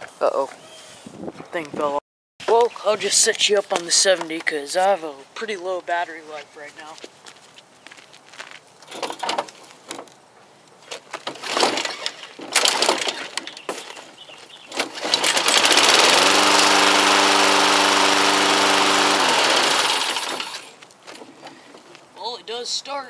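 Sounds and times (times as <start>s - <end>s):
recoil starter pulls: 11.3s - 13.5s, 14.7s - 20.8s
lawn mower engine running: 14.8s - 20.8s.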